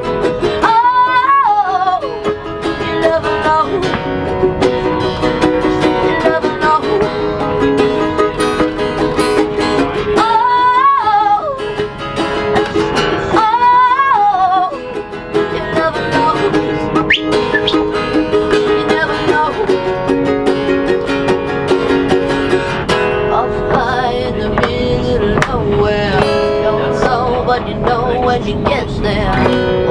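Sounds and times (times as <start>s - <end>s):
person singing: 0.0s - 4.1s, 4.8s - 7.5s, 10.2s - 11.7s, 12.5s - 19.9s, 23.2s - 29.9s
ukulele and guitar strumming: 0.0s - 29.9s.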